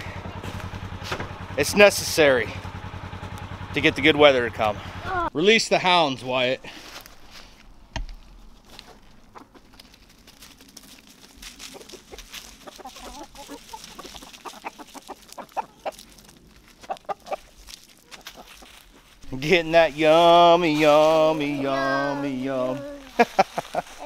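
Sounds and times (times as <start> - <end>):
chickens clucking: 8.8 - 10.1, 11.1 - 24.0.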